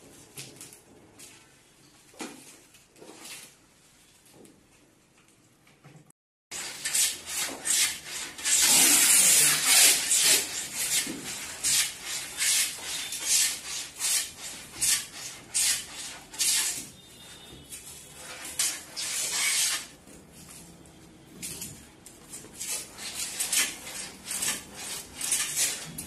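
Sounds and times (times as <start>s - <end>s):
hand sanding wood: 6.6s - 17.0s, 22.5s - 26.0s.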